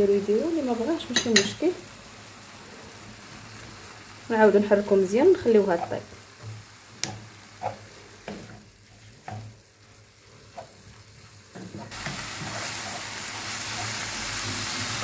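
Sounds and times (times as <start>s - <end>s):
meat sizzling: 0.0s - 15.0s
wooden spatula scraping a pan: 5.4s - 6.7s, 7.5s - 14.8s.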